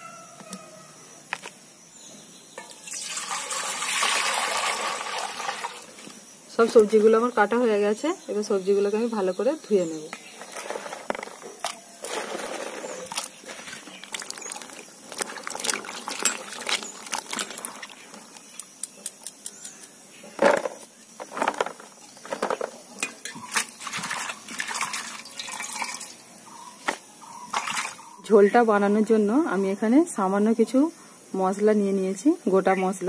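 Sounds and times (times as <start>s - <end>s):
water splashing and dripping: 2.7s - 6.2s, 12.0s - 18.7s, 23.3s - 26.2s, 26.9s - 28.1s.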